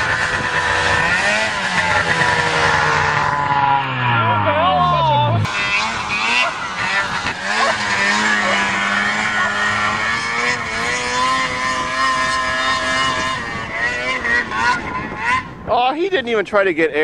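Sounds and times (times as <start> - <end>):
snowmobile engine running: 0.0 - 15.7.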